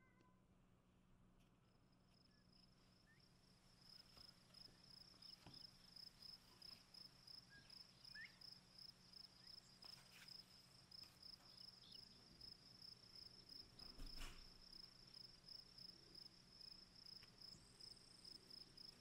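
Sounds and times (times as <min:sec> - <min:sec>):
cricket chirping: 0:01.7 - 0:19.0.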